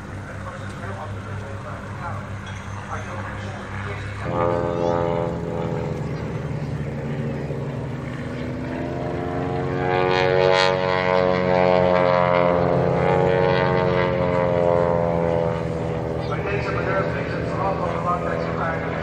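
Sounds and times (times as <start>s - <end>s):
propeller planes droning overhead: 0.0s - 19.0s.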